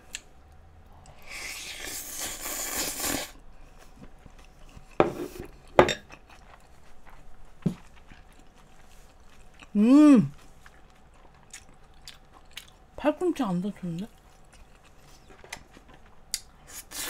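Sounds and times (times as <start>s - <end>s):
wet chewing: 2.0s - 12.8s.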